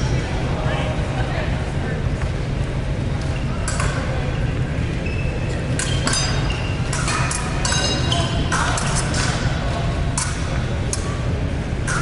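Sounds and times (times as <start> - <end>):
steady low hum: 0.0 - 12.0
fencing blades clinking: 5.8 - 9.5.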